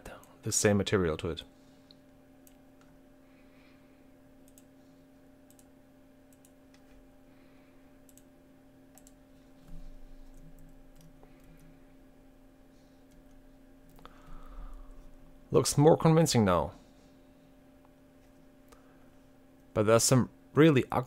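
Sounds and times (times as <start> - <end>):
low electrical hum: 0.0 - 21.0
computer mouse clicks: 4.4 - 4.7, 5.5 - 5.7, 6.3 - 6.9, 8.1 - 8.3, 8.9 - 11.7.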